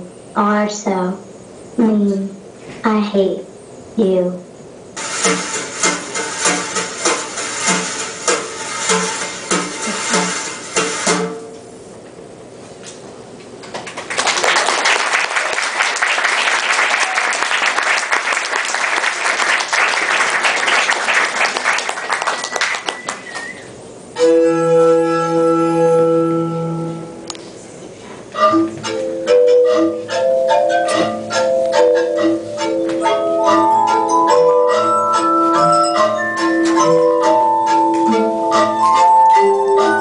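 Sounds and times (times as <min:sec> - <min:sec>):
audience applauding: 0:13.7 - 0:23.7
soft instrumental music: 0:24.2 - 0:27.3, 0:28.4 - 0:40.0.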